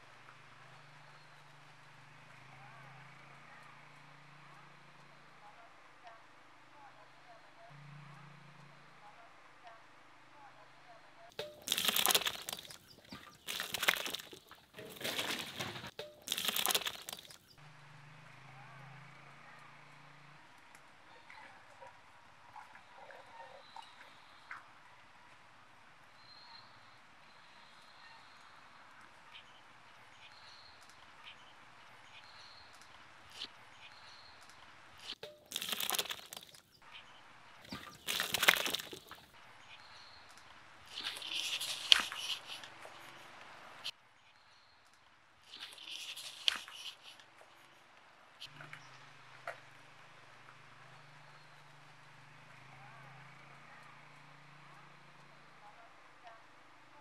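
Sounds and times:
faint bird chirp: 0:00.0 - 0:57.0
tomato pulp splattering into bucket: 0:11.4 - 0:17.4, 0:35.3 - 0:36.6, 0:37.7 - 0:39.3.

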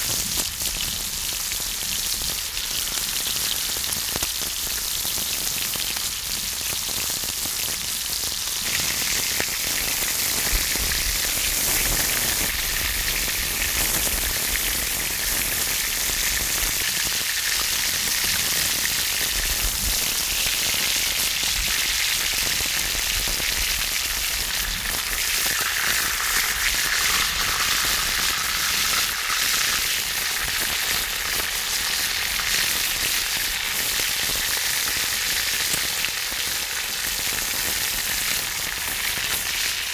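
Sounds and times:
pork belly sizzling and crackling: 0:00.0 - 0:39.9.

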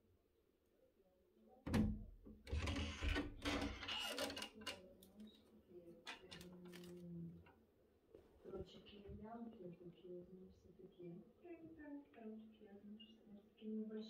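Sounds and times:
wooden door rattling open: 0:01.7 - 0:04.7.

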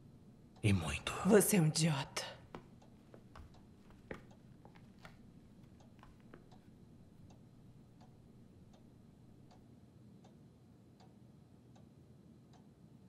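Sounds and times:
soft ticking: 0:02.2 - 0:09.7.

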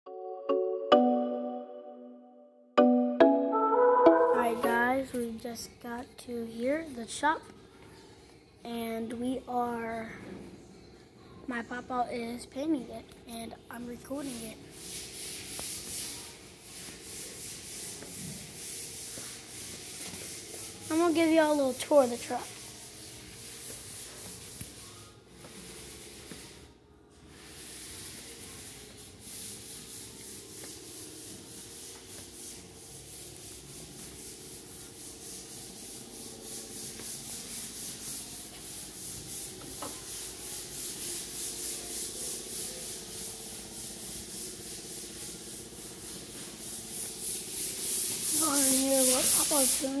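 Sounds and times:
compressed-air spray hiss: 0:44.9 - 0:50.0.

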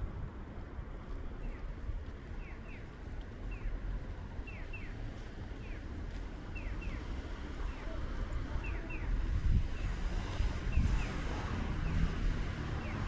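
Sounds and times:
bird chirping: 0:02.4 - 0:03.8, 0:04.4 - 0:05.0, 0:06.5 - 0:07.1.

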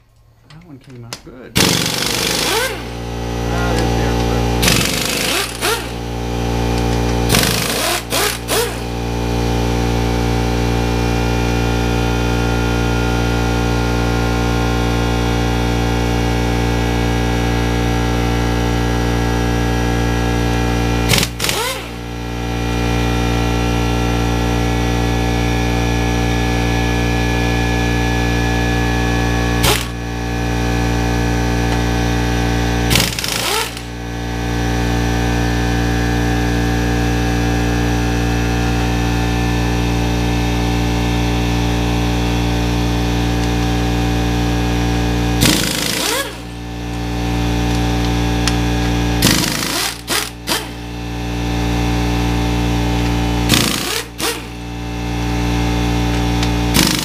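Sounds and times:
air compressor running: 0:01.5 - 0:57.0
pneumatic impact wrench rattling: 0:01.6 - 0:03.1, 0:04.6 - 0:09.0, 0:21.0 - 0:22.1, 0:29.6 - 0:30.0, 0:32.8 - 0:34.0, 0:45.4 - 0:50.9, 0:52.9 - 0:54.7, 0:55.8 - 0:57.0.

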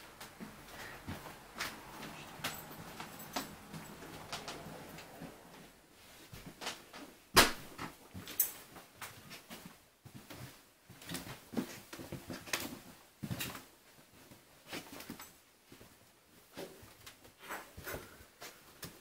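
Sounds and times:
footsteps on hardwood floor: 0:00.0 - 0:06.6.

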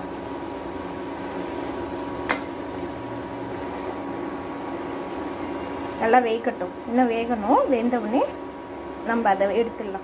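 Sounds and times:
water boiling in pot: 0:00.0 - 0:10.0
sharp click: 0:02.3 - 0:02.5.

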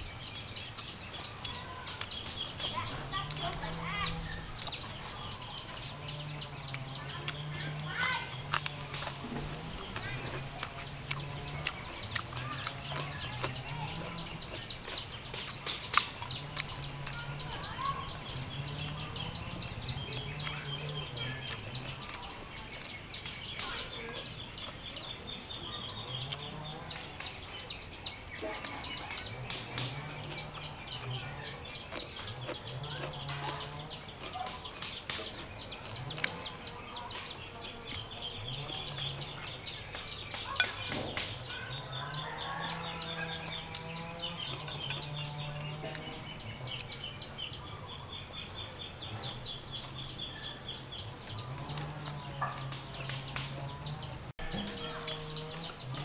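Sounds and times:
chicks peeping: 0:00.0 - 0:56.0
low drawn-out chicken calls: 0:40.4 - 0:46.8.

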